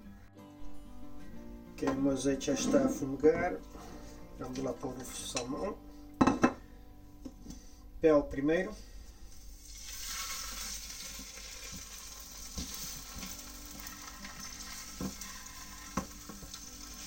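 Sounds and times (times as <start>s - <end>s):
fish sizzling in oil: 9.3s - 17.0s.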